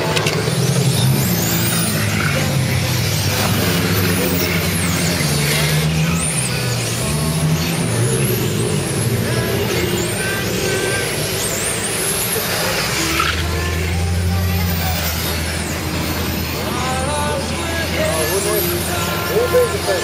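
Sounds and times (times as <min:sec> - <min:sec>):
electric motors whining: 0:00.0 - 0:20.0.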